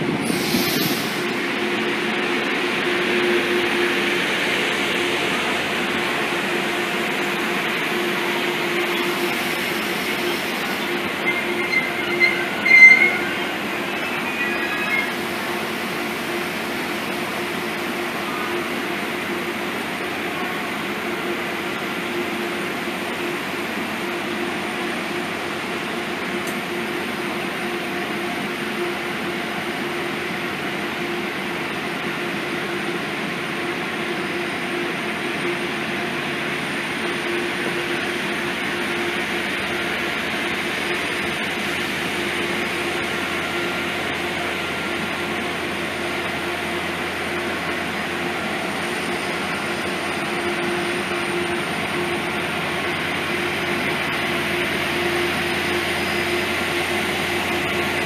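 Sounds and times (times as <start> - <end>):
train locomotive humming: 0.0 - 58.0.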